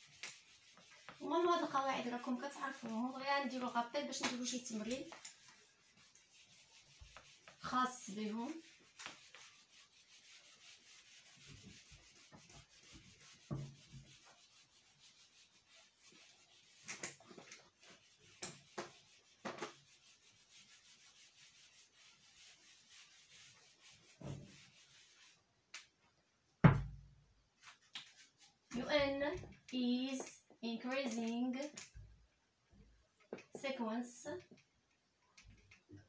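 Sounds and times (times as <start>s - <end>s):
eraser swishing on whiteboard: 0.0s - 25.4s, 27.6s - 28.9s.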